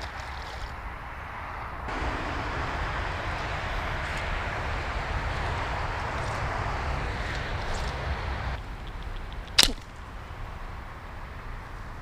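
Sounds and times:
road traffic rumble and hiss: 0.0s - 12.0s.

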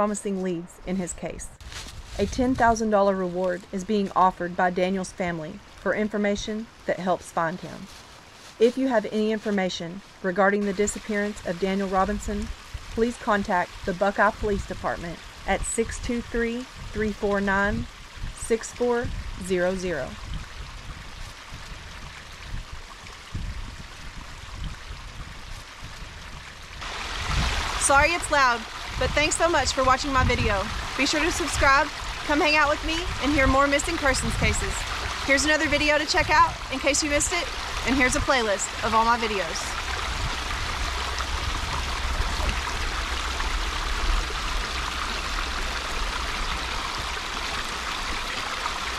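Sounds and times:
water rushing over rocks: 20.2s - 48.9s
low rumble: 39.6s - 48.4s.

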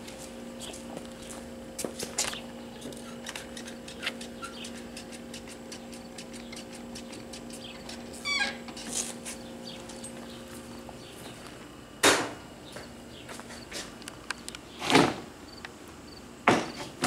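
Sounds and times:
footsteps on gravel: 0.0s - 3.5s, 5.1s - 11.7s
steady low hum: 0.0s - 17.0s.

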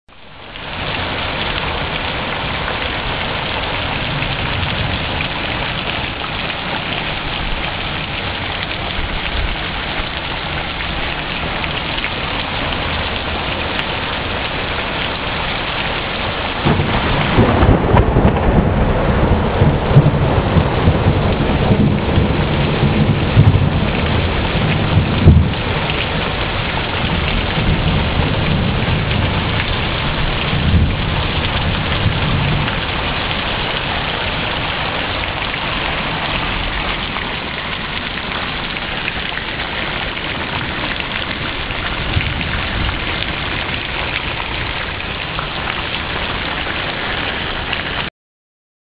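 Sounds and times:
heavy rain pouring: 0.1s - 48.1s
thunder rumbling: 0.8s - 47.9s.

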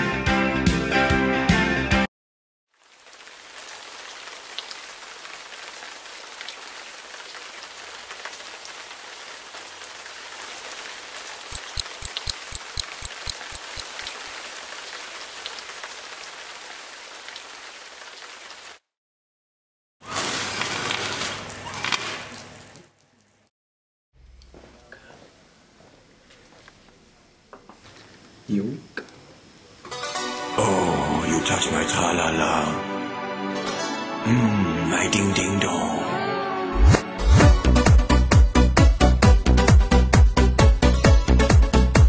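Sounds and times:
steady rain falling: 2.7s - 18.9s
quick run of clicks: 11.5s - 14.2s.

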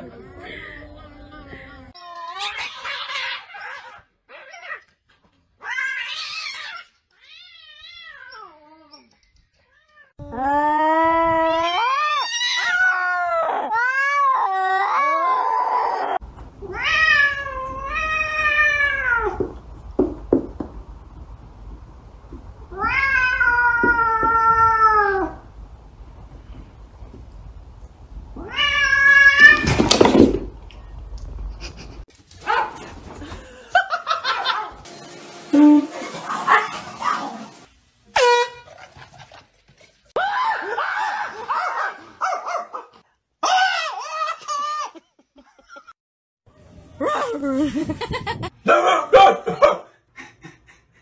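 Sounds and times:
cats screeching: 2.0s - 4.8s, 5.6s - 9.0s.

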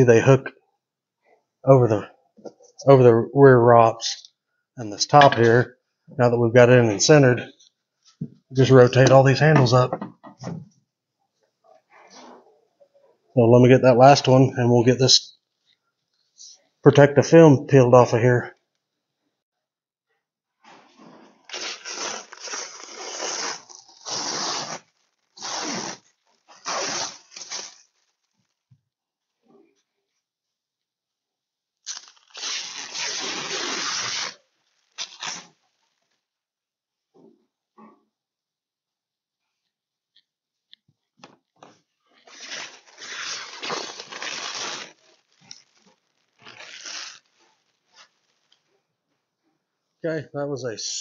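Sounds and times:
plastic film peeling off: 21.4s - 28.0s, 31.8s - 35.5s, 42.2s - 45.8s, 46.4s - 47.4s.

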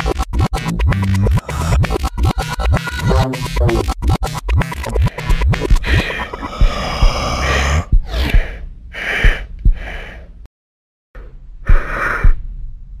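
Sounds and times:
electronic music: 0.0s - 7.7s
swept noisy effects: 0.0s - 7.8s.

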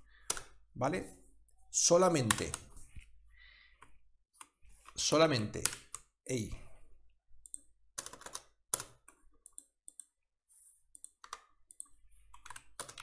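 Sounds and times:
computer keyboard typing: 0.2s - 0.6s, 7.4s - 10.2s, 10.9s - 13.0s.

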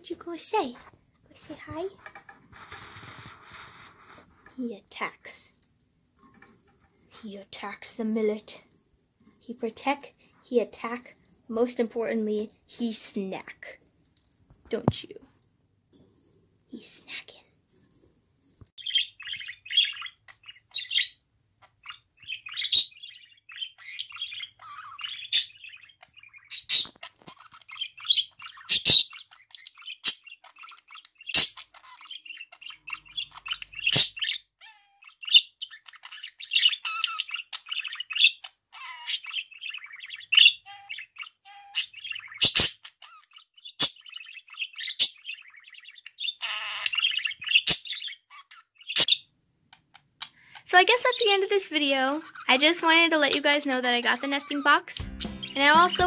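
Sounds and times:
budgerigar chattering and warbling: 18.8s - 49.2s
sharp bird chirps: 54.3s - 56.0s.

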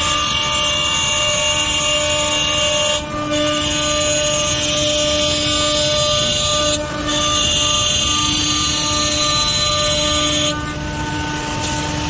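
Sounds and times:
machine spindles whining: 0.0s - 12.0s.

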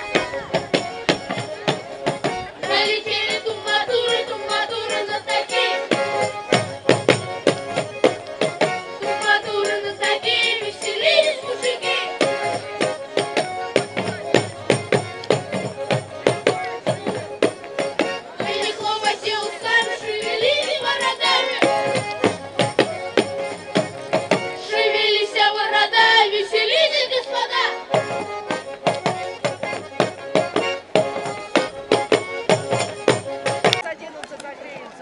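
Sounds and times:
hand percussion beat: 0.0s - 25.1s, 27.8s - 33.8s
group of voices singing: 2.6s - 6.4s, 9.0s - 12.6s, 18.4s - 22.1s, 24.5s - 28.0s.

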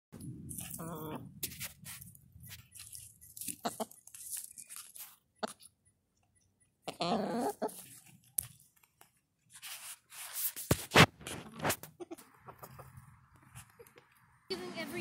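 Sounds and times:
hens scratching in straw: 0.5s - 5.6s, 6.9s - 8.2s, 9.5s - 14.0s.

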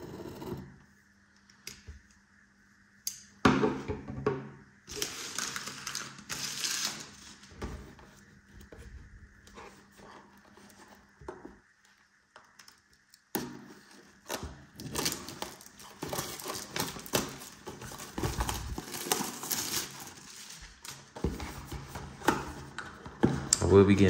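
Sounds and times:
plastic wrapper crinkling: 4.9s - 7.5s, 14.8s - 21.1s.

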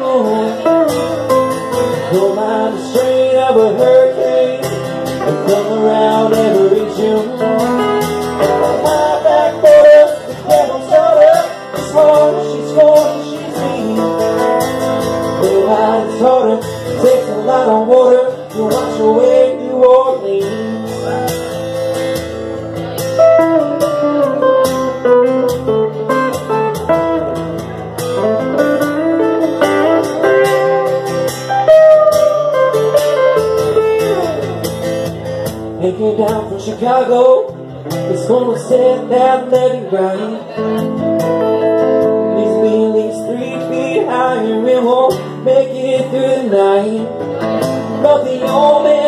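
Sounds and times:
electric guitar solo: 20.8s - 35.8s, 40.4s - 44.4s.

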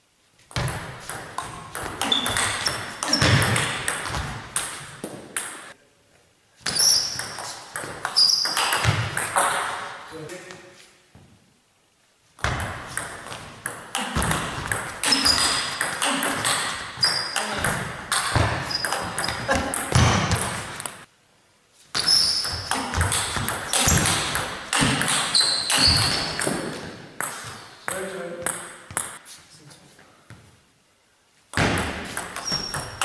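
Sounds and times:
shoes squeaking on floor: 1.4s - 5.8s, 6.6s - 9.8s, 14.0s - 21.1s, 21.8s - 28.1s, 32.0s - 33.0s.

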